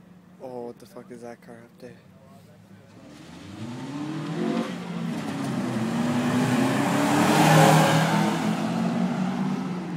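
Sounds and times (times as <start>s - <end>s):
car passing at speed: 2.9s - 9.9s.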